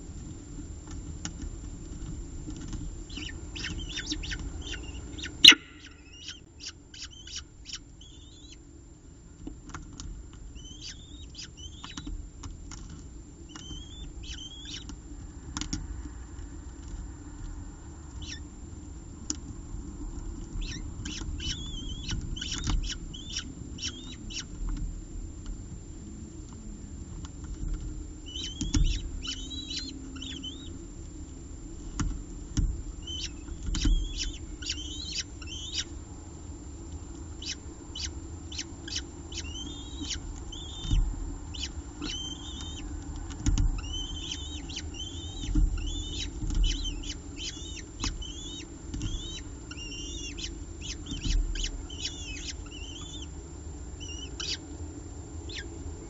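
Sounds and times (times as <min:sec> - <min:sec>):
young falcons chirping: 0:03.0 - 0:08.6, 0:10.5 - 0:12.1, 0:13.5 - 0:15.0, 0:18.2 - 0:18.4, 0:20.6 - 0:24.6, 0:28.2 - 0:30.8, 0:33.0 - 0:36.0, 0:37.3 - 0:53.4, 0:54.0 - 0:54.6, 0:55.4 - 0:55.8.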